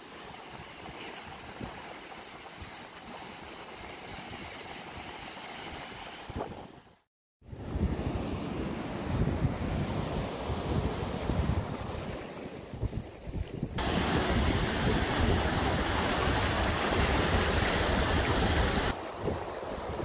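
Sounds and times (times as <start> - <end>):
wind buffeting microphone: 7.5 - 20.0
surf breaking on beach: 13.7 - 20.0
rushing hiss of water: 13.8 - 20.0.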